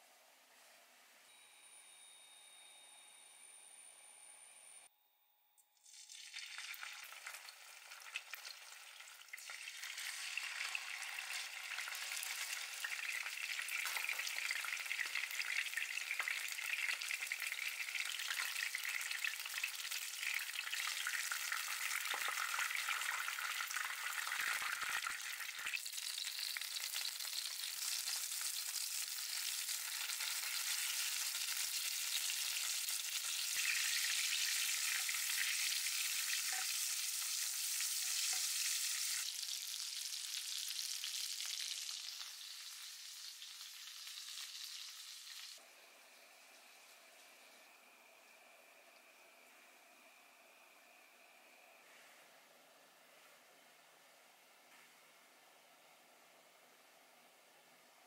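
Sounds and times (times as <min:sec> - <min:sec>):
fish sizzling in hot oil: 0:05.8 - 0:45.6.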